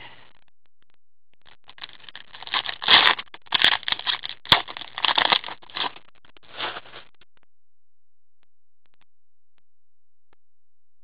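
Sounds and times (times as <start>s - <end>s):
foil wrapper crinkling and tearing: 1.6s - 7.1s.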